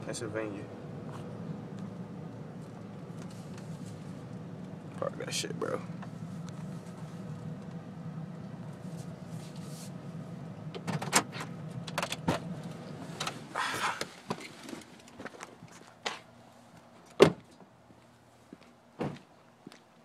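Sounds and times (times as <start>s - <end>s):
car engine running: 0.0s - 15.8s
sharp knocks and clicks in cabin: 17.2s - 17.4s.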